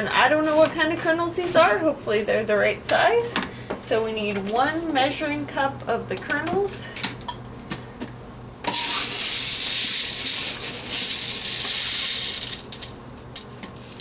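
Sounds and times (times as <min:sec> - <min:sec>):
popcorn kernels rattling: 0:08.7 - 0:14.0.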